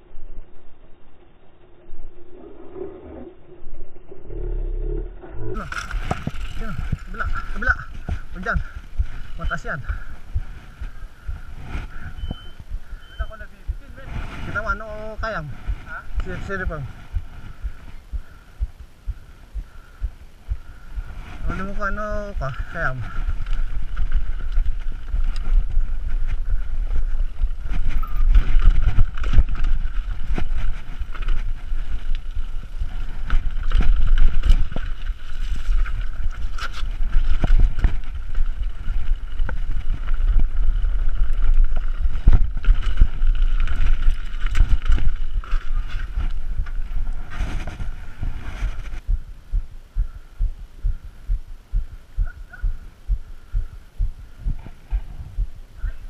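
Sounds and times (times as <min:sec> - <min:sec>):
wind rumble on microphone: 0:00.0 - 0:56.0
sharp knocks from roots and rocks: 0:05.6 - 0:09.5, 0:33.1 - 0:49.1
bike rattling: 0:05.6 - 0:49.1
regular thumping: 0:05.6 - 0:56.0.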